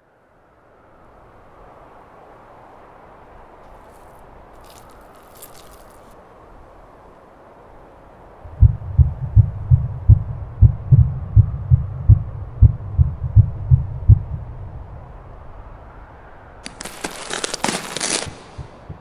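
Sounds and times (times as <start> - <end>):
dense crackling and crunching: 3.7 - 6.2, 16.6 - 18.9
deep heartbeat-like thumping: 8.5 - 15.0, 18.5 - 19.0.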